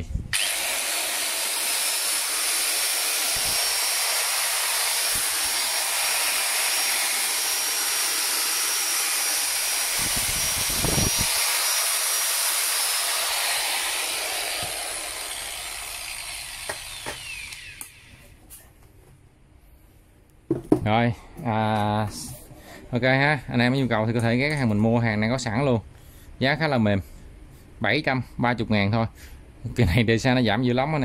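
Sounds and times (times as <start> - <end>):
motor spinning down: 0.3 - 12.3, 13.2 - 18.2
stone cutter whirring: 0.3 - 18.4.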